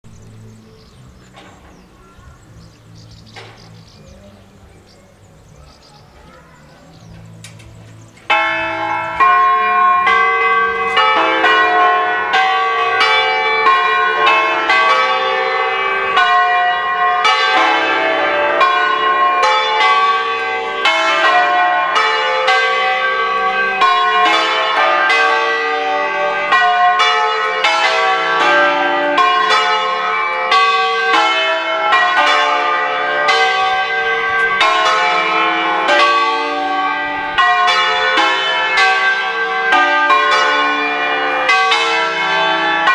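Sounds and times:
church bells ringing in full swing: 0.0 - 42.9.

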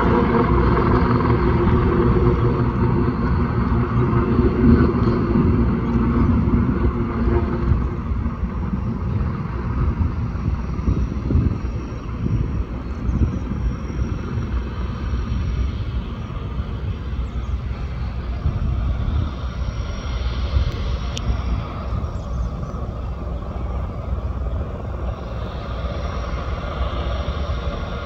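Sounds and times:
float plane propeller engine: 0.0 - 28.0
low engine rumble: 0.0 - 28.0.

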